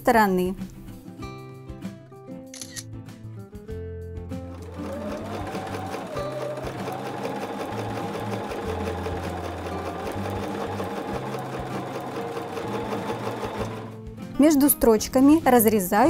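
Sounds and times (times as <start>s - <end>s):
background music with low notes: 0.0s - 16.0s
sewing machine stitching: 4.5s - 14.0s.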